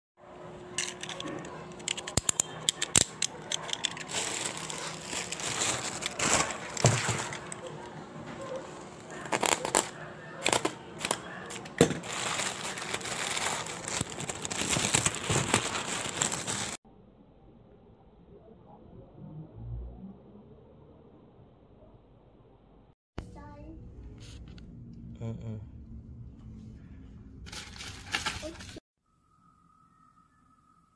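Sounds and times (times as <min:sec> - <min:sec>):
plastic packaging crinkling: 0:02.8 - 0:07.7, 0:09.2 - 0:16.8.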